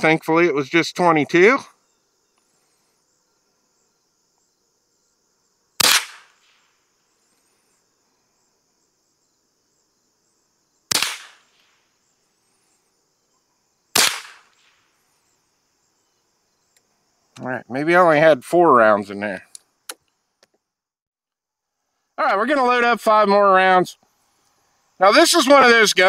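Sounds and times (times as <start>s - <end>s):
rifle shots: 5.8s - 6.6s, 10.9s - 11.7s, 14.0s - 14.8s.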